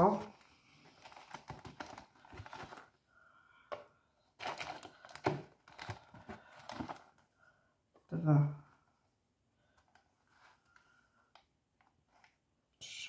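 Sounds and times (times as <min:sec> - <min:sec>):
cardboard crinkling: 0:00.0 - 0:03.0, 0:04.4 - 0:07.3.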